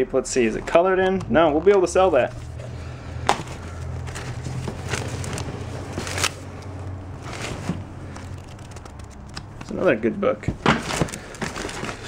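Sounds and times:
papers rustling and scraping: 1.5 - 12.0
paper crackles: 3.3 - 9.9, 10.6 - 12.0.

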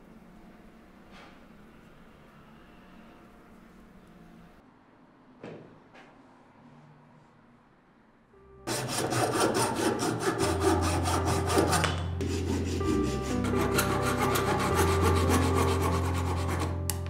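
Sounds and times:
hand saw cutting branch: 8.7 - 16.8.

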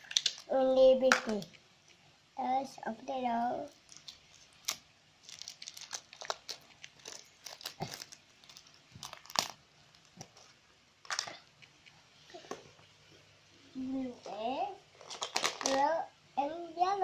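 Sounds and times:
plastic wrapper crinkling and tearing: 0.0 - 0.5, 3.7 - 11.7, 14.9 - 15.9.

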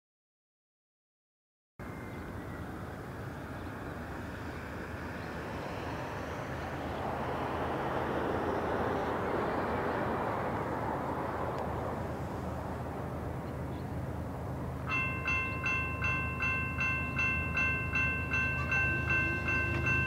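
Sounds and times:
diesel locomotives rumbling: 1.8 - 20.0.

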